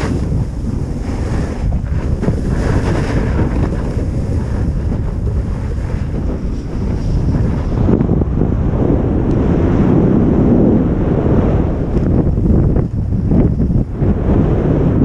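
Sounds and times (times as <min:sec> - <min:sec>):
skis carving on snow: 0:00.0 - 0:08.2
wind buffeting microphone: 0:00.0 - 0:15.0.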